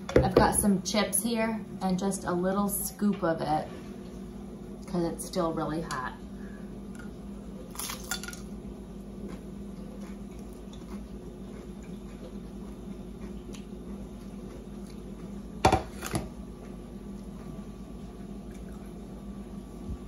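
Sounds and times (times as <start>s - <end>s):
tortilla chip crunch: 7.7s - 8.5s.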